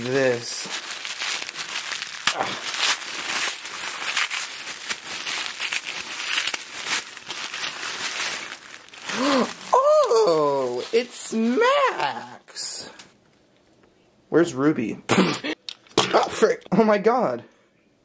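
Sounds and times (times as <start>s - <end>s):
tissue paper crinkling: 0.0s - 12.4s.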